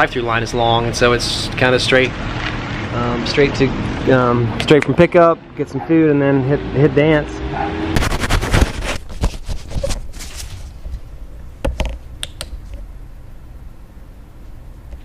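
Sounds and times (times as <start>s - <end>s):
camera handling knocks and rustles: 8.0s - 11.0s, 11.6s - 12.1s
sharp clicks: 11.8s - 12.8s.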